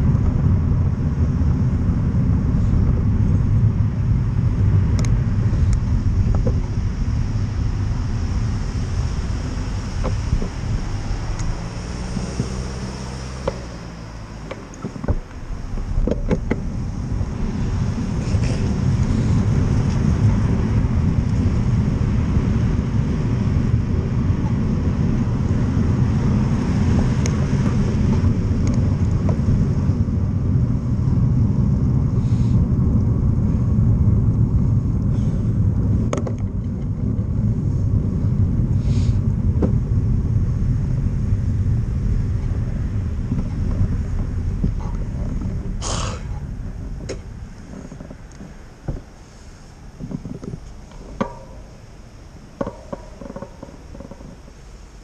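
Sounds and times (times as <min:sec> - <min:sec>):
road traffic: 0:00.0 - 0:55.0
wind buffeting microphone: 0:00.0 - 0:55.0
tyres rolling on wet road: 0:05.9 - 0:30.8.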